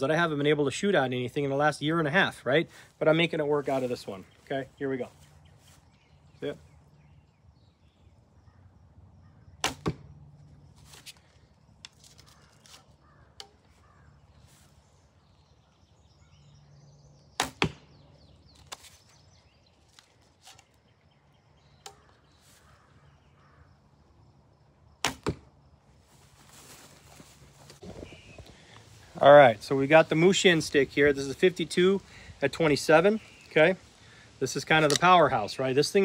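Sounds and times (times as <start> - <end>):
arrow striking target: 9.6 - 10.1, 17.4 - 17.9, 25.0 - 25.5.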